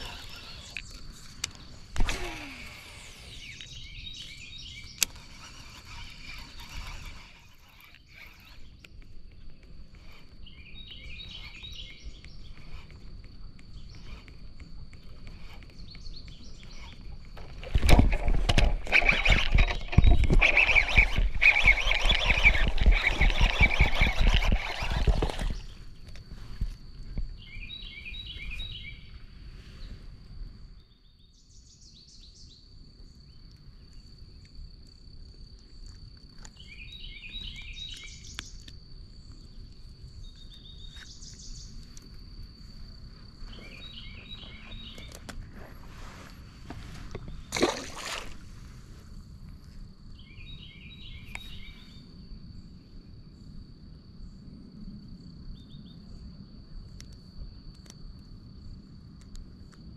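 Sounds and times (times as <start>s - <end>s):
bird chirping: 0.0s - 17.5s, 27.4s - 29.2s, 36.4s - 38.7s, 40.1s - 42.0s, 43.4s - 45.3s, 50.2s - 52.1s
high insect buzz: 0.0s - 26.6s, 36.6s - 48.6s
rough noise with rapid knocks: 16.8s - 25.8s.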